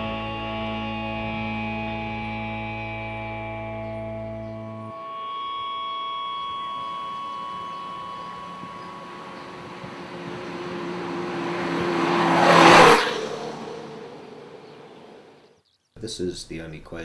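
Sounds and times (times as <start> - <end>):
motorcycle engine passing by: 6.5 - 15.6.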